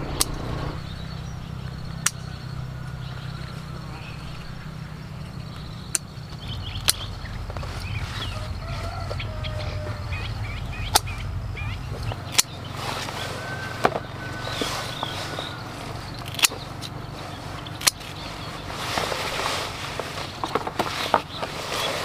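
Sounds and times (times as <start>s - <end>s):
sharp isolated clicks: 0.0s - 0.7s, 1.6s - 2.3s, 5.5s - 7.6s, 10.8s - 11.3s, 11.9s - 12.6s
short chirping bird calls: 0.0s - 19.1s
low steady rumble: 0.0s - 21.7s.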